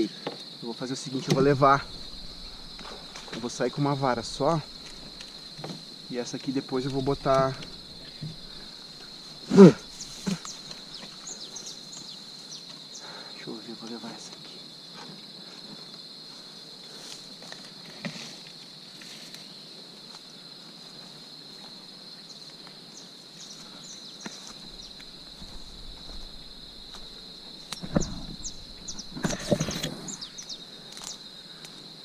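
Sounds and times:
high-pitched insect chorus: 0.0 - 32.0
rustling: 1.2 - 12.1, 23.5 - 31.2
footsteps: 1.3 - 11.3, 24.2 - 30.1
loud knocks: 27.8 - 29.6.

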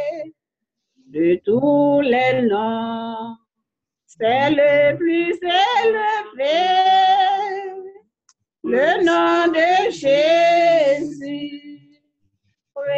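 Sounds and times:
person singing a hymn: 1.2 - 3.4, 4.2 - 8.0, 8.7 - 11.9.

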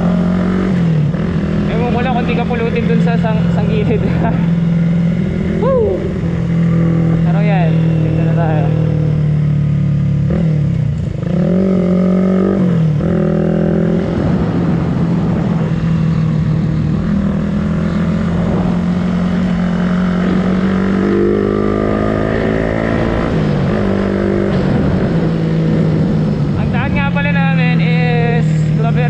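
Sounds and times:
motorcycle engine running: 0.0 - 29.0
wind buffeting the microphone: 12.6 - 21.5.

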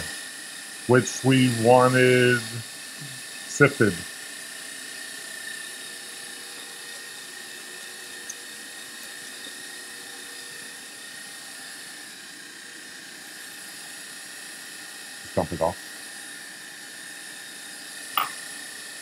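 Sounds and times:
stand mixer motor whining: 4.4 - 19.0.

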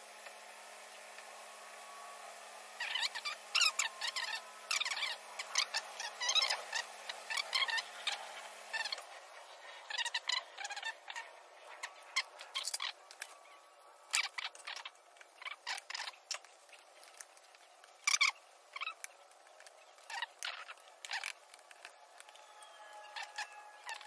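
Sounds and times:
plastic packets crinkling: 11.8 - 24.0.

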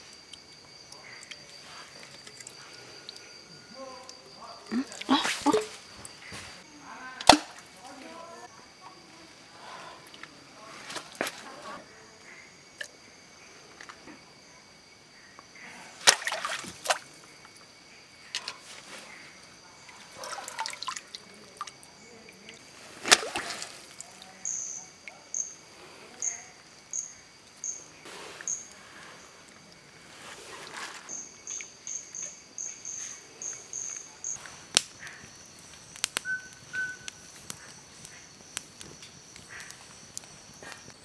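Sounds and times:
insect chirping: 0.0 - 41.0
insects trilling: 0.0 - 41.0
hands splashing in shallow water: 16.0 - 17.0, 23.0 - 24.0
water trickling: 20.0 - 25.2.

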